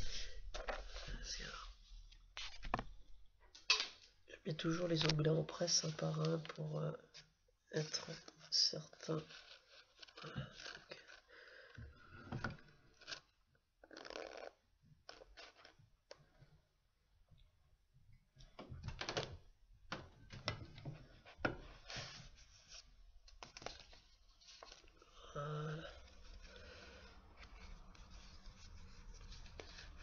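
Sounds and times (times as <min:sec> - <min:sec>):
paper rustling: 0:04.8 - 0:11.3, 0:20.4 - 0:25.2, 0:25.8 - 0:30.0.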